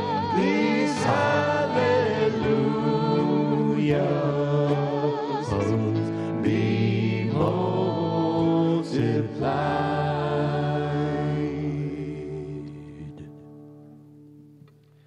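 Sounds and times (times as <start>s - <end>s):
people singing worship song: 0.0s - 13.4s
piano: 0.0s - 14.4s
guitars: 0.0s - 15.0s.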